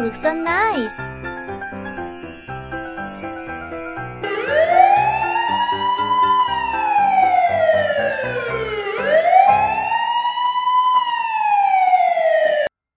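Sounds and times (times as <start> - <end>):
light background music: 0.0 - 10.4
wailing siren: 4.2 - 12.7.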